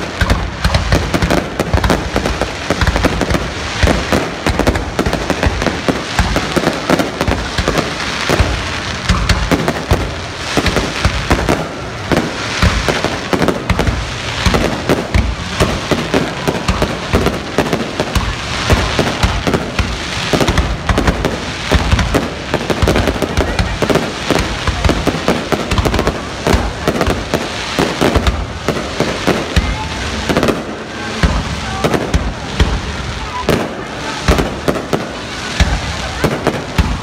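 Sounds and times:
fireworks bangs: 0.0s - 37.0s.

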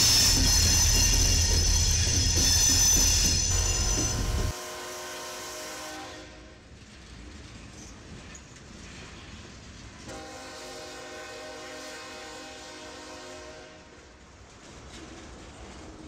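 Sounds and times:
passing train rumble: 0.0s - 16.0s
locomotive air horn: 3.4s - 6.6s, 10.1s - 13.9s.

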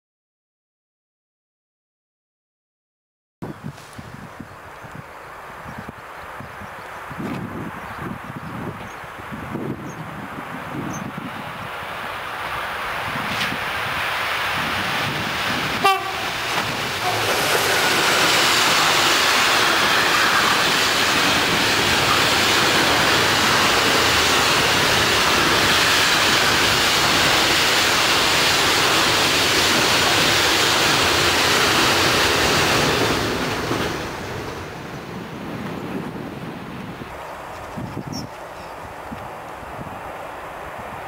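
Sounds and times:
wheels rushing on rails: 3.7s - 41.0s
train horn toot: 15.8s - 16.4s, 17.0s - 18.0s.

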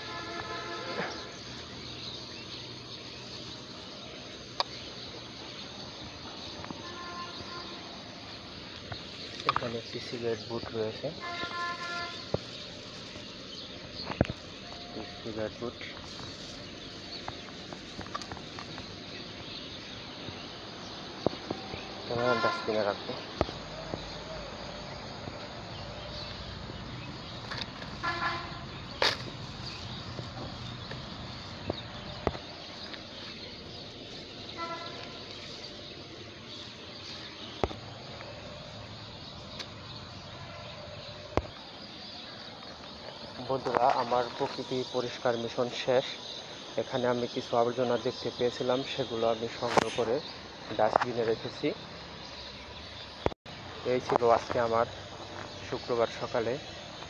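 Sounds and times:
outdoor background hiss: 0.0s - 57.0s.

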